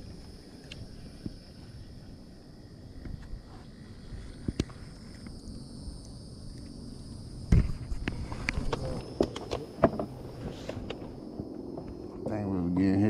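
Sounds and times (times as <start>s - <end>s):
high insect drone: 0.0s - 13.0s
knocks and taps on a boat: 9.2s - 10.2s.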